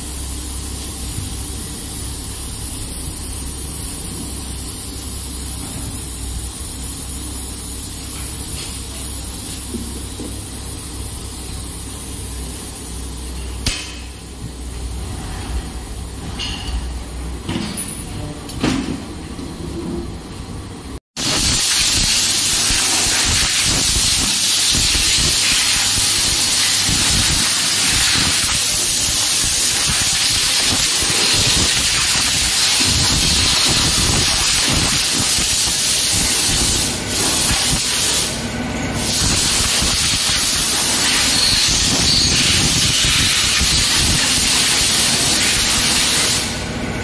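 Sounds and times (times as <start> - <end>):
high-pressure water jet hissing: 21.2 - 38.4, 39.0 - 46.6.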